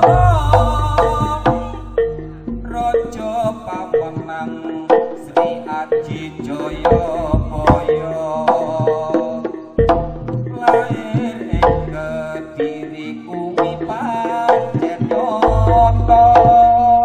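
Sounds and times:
melody line: 0.0 - 5.2, 15.5 - 17.0
regular drum strokes: 6.1 - 9.2.

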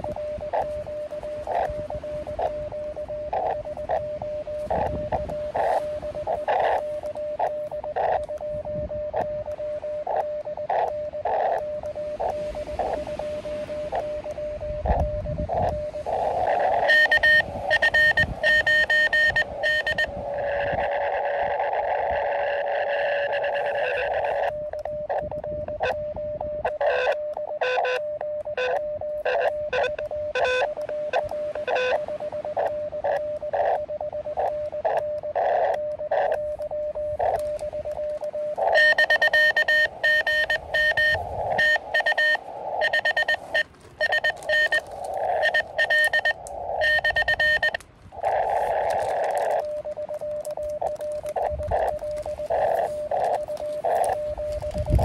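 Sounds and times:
morse code tone: 0.0 - 55.0
radio band hiss: 0.0 - 55.0
harsh loud morse keying: 36.1 - 55.0.

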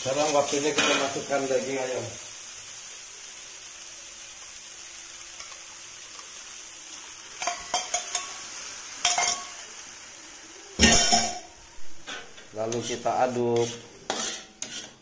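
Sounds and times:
paste sizzling in a wok: 0.0 - 15.0
loud metal clank: 10.8 - 11.4.

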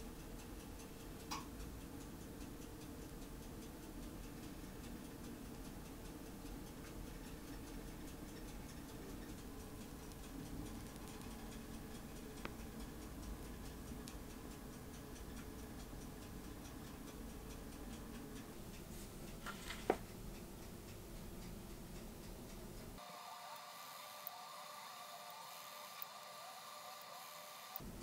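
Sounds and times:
faint steady ticking: 0.0 - 28.0
low room hum: 0.0 - 28.0.

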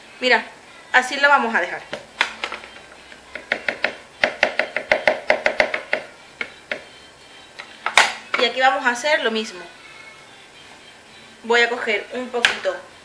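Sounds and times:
knife chopping food: 3.2 - 6.9.

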